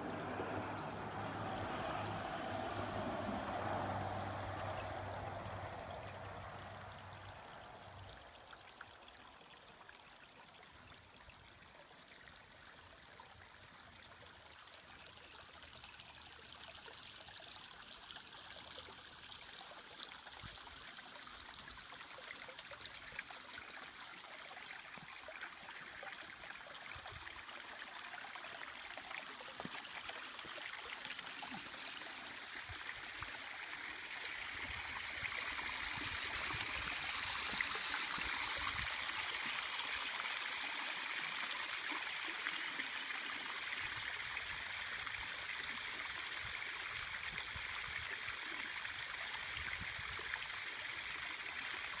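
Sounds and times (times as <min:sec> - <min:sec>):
stream splashing over rock: 0:00.0 - 0:09.1, 0:12.9 - 0:52.0.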